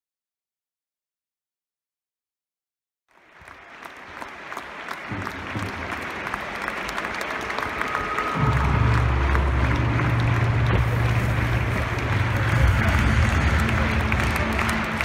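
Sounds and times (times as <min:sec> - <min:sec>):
stadium crowd clapping: 0:03.1 - 0:15.0.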